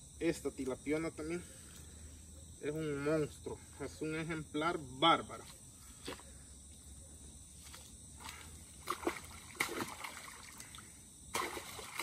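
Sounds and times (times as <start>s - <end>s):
river water splashing: 7.7s - 12.0s.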